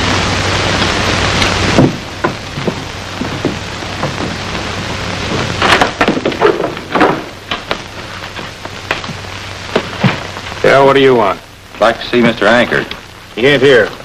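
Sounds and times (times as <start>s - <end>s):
old film soundtrack hiss: 0.0s - 14.0s
footsteps on wooden floor: 1.8s - 10.4s.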